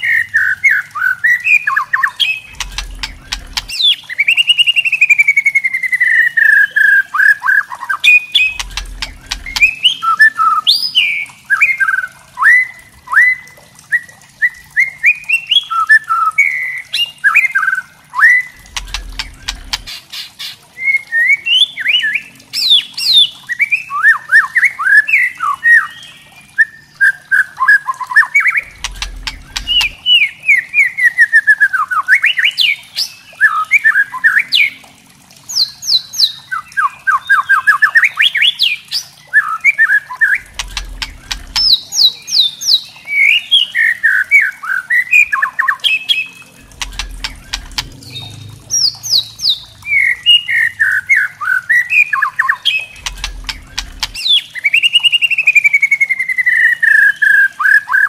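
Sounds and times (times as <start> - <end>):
bird clicking chatter: 2.5 - 3.8, 8.4 - 9.8, 18.6 - 20.2, 28.6 - 30.0, 40.4 - 41.8, 46.6 - 48.4, 53.0 - 54.4.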